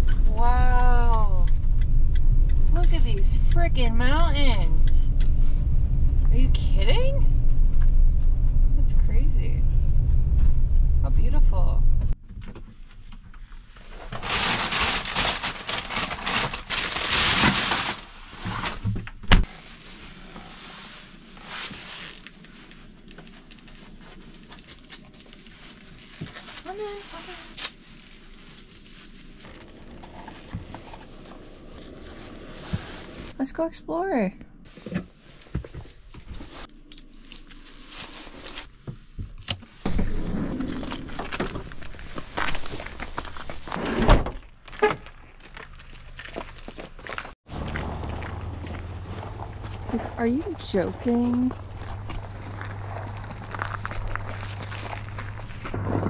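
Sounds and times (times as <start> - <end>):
steady low noise: 0.0 - 12.2
rustling and handling noises: 12.7 - 33.4, 34.7 - 47.4, 48.6 - 56.0
gear clicking and rustling: 39.3 - 56.0
boots stepping onto icy pavement: 40.6 - 43.8, 44.4 - 56.0.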